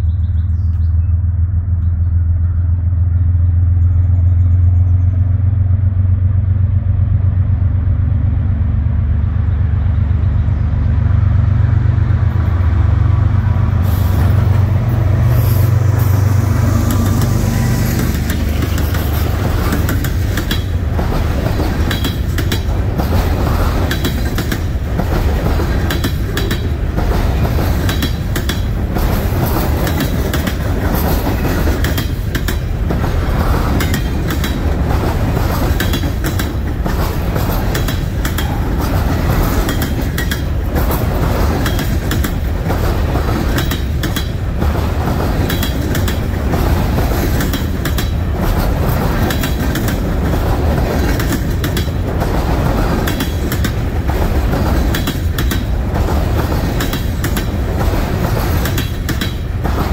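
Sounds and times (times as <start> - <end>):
diesel locomotive engine rumble: 0.0 - 59.9
train wheels clacking over rail joints: 13.8 - 59.9.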